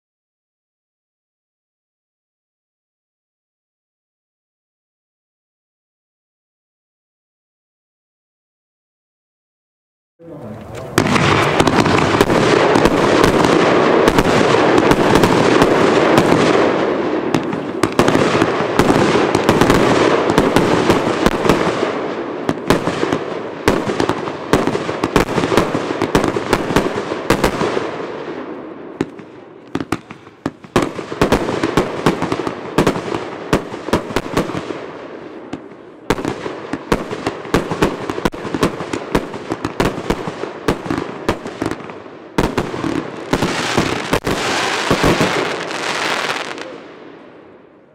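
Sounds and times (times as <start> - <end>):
fireworks barrage with crackle: 10.2 - 47.8.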